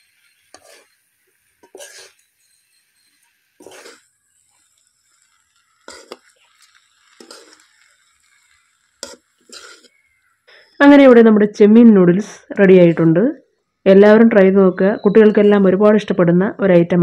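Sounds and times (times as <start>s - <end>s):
steel spoons scraping metal pan: 0.0s - 10.3s.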